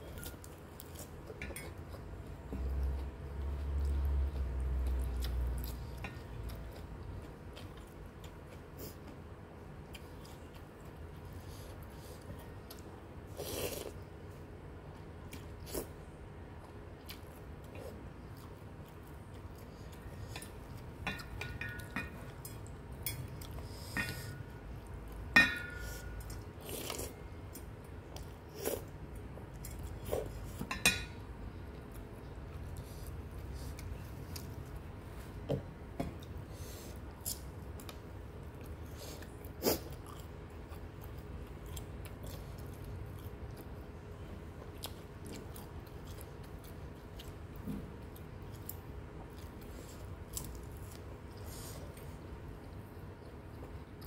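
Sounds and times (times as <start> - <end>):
person chewing: 0.0 - 14.1, 16.6 - 30.7, 36.2 - 54.0
cutlery clinking on steel bowl: 20.4 - 22.2, 25.4 - 25.8, 30.6 - 31.2.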